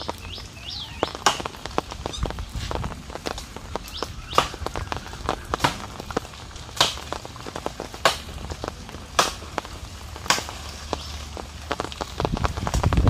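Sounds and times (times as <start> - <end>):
wood cracks and rustles: 1.0 - 13.0
hand axe chopping branch: 6.8 - 7.2, 9.2 - 9.5, 10.3 - 10.6.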